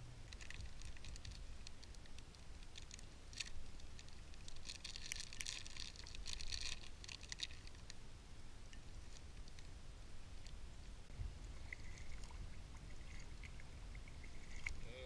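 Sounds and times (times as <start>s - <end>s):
plastic wrapper crinkling: 0.3s - 8.0s.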